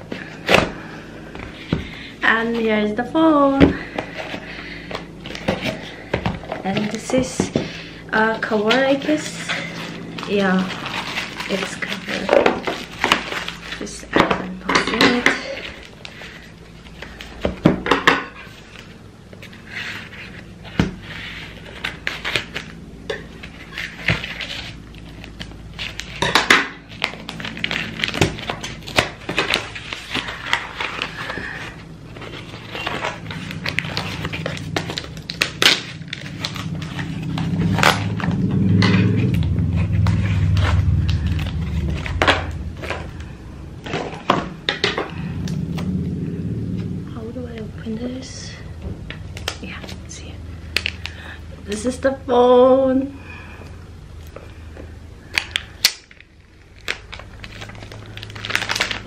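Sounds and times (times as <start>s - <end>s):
cardboard rustling and scraping: 0.0s - 45.9s.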